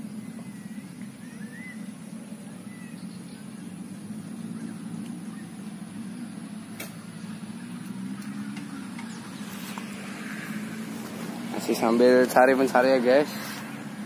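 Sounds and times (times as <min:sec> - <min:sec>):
scooter engine idling: 0:00.0 - 0:14.0
sharp click: 0:06.8 - 0:07.0.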